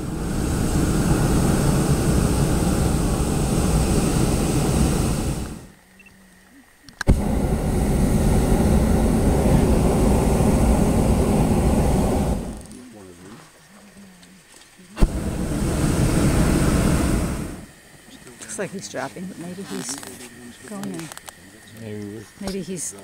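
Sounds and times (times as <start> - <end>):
propane burner blasting: 0.0 - 5.8, 7.0 - 12.8, 15.0 - 23.0
burner click: 6.9 - 7.4.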